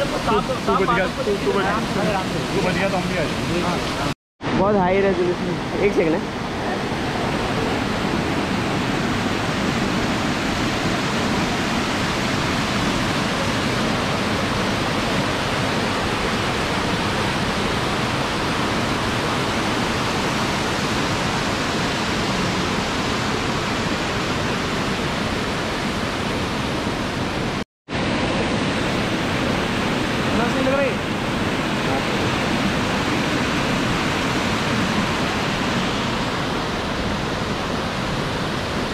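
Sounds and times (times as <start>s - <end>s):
white-water rapids: 0.0s - 4.2s, 4.9s - 38.9s
waterfall rushing: 0.0s - 38.9s.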